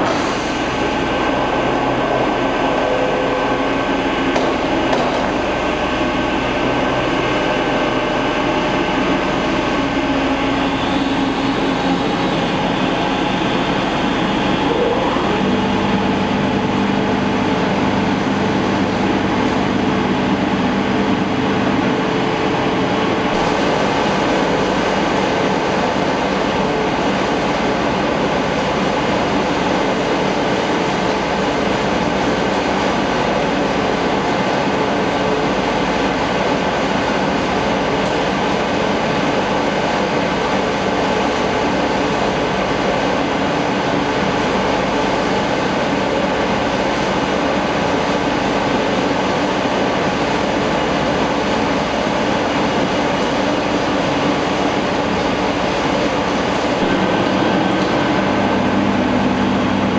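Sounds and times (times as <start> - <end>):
mill machinery running: 0.0 - 59.9
faint hum tones: 54.3 - 59.9.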